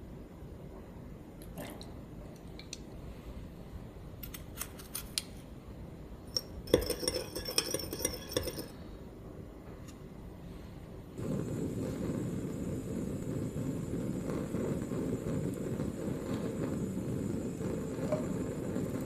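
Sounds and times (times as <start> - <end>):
spoon tapping: 6.4 - 8.7
metal spoon clinking glass bowl: 6.4 - 8.8.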